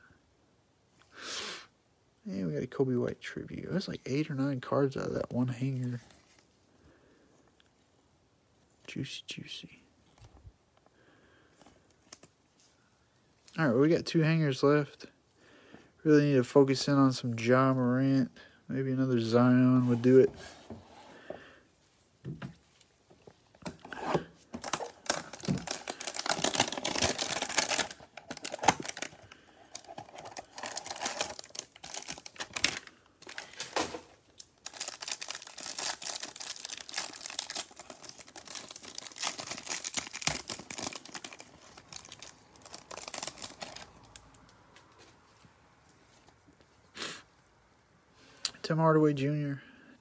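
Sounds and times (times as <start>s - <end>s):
cellophane crinkling: 23.6s - 44.6s.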